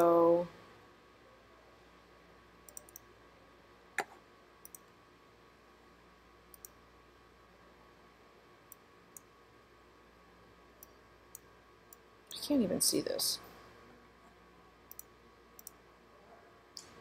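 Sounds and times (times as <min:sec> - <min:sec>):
faint room noise: 0:00.0 - 0:17.0
computer mouse clicks: 0:02.7 - 0:03.1, 0:04.0 - 0:04.9, 0:06.5 - 0:06.8, 0:14.9 - 0:15.8.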